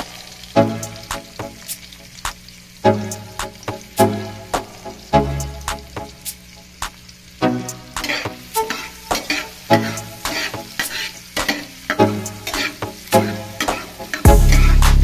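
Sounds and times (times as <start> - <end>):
food sizzling in frying pan: 0.0 - 15.0
spatula scraping pan: 7.9 - 14.7.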